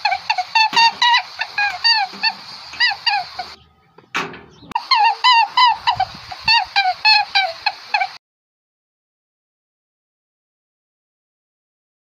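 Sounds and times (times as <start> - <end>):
short high animal calls: 0.0 - 3.6, 4.7 - 8.2.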